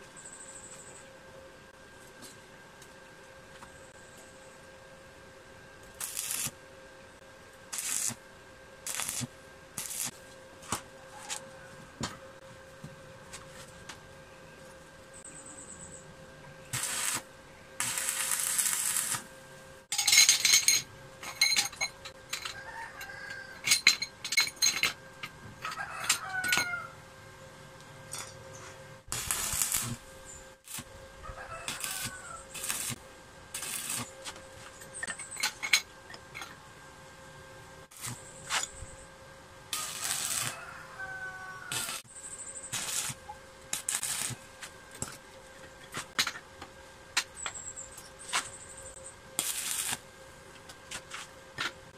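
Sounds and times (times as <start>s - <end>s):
welding arc crackling: 5.9s - 6.6s, 7.6s - 8.2s, 8.8s - 10.2s, 16.7s - 19.4s, 29.0s - 34.4s, 37.9s - 38.7s, 39.7s - 40.6s, 41.5s - 45.1s, 49.4s - 50.1s.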